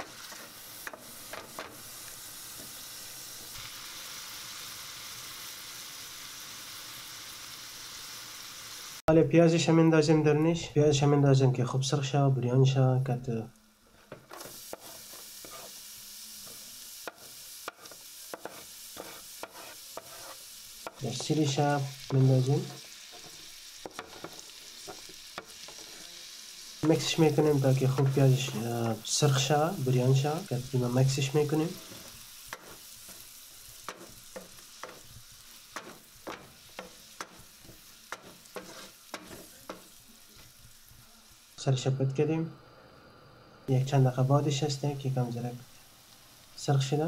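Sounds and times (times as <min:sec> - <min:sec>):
wooden spoon scraping a pan: 0:00.0 - 0:01.9, 0:14.0 - 0:15.8, 0:16.4 - 0:26.2, 0:31.2 - 0:40.6
onion sizzling in hot oil: 0:00.0 - 0:09.1, 0:12.9 - 0:47.0.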